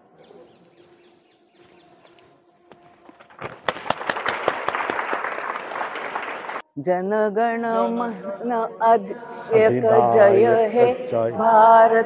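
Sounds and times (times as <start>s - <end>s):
crowd clapping: 3.2s - 6.6s.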